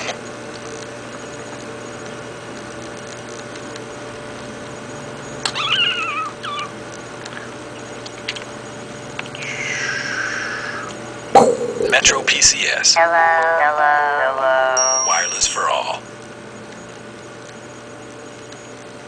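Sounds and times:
faint steady hum: 0:00.0 - 0:19.0
cat meowing: 0:05.5 - 0:06.7.

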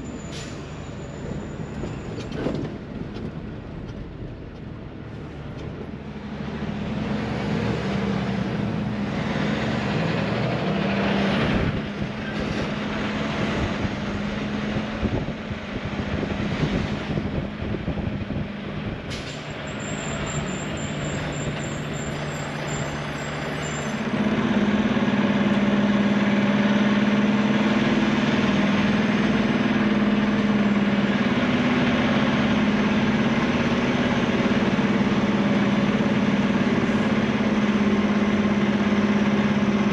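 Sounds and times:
diesel truck engine running: 0:00.0 - 0:39.9.

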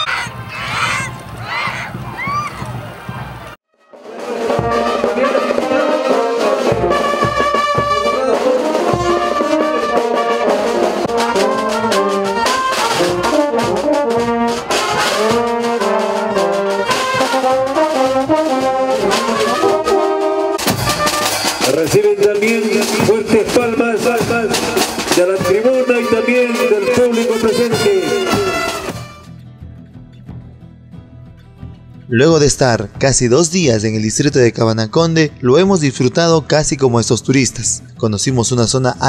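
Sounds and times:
brass band playing a march: 0:03.9 - 0:29.3.

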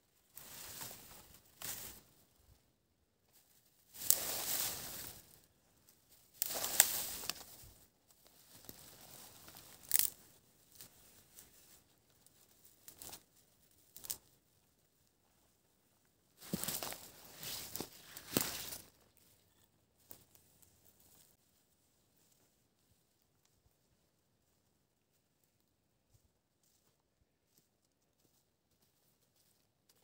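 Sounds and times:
dry twigs snapping: 0:06.3 - 0:07.6, 0:09.4 - 0:10.2, 0:13.9 - 0:14.2, 0:16.4 - 0:19.0.

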